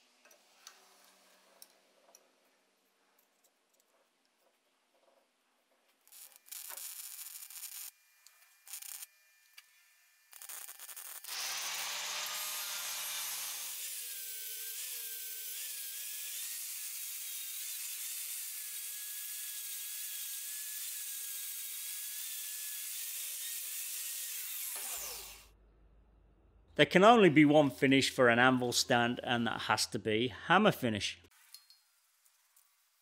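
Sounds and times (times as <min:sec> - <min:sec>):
welding crackle: 0:06.0 - 0:09.6, 0:10.3 - 0:12.5, 0:31.4 - 0:33.0
angle grinder grinding steel: 0:08.6 - 0:09.1, 0:10.3 - 0:25.5.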